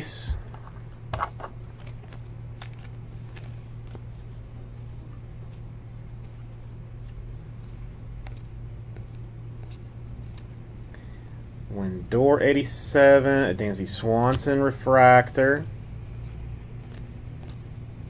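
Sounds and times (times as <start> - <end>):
steady low hum: 0.0 - 18.0
cards sliding and flipping: 0.4 - 10.6, 15.6 - 18.0.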